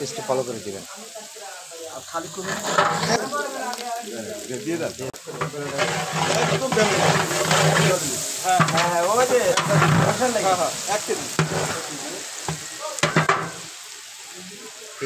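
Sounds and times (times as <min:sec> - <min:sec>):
onions sizzling in oil: 0:00.0 - 0:15.0
metal spatula scraping pot: 0:02.2 - 0:03.3, 0:05.3 - 0:13.7.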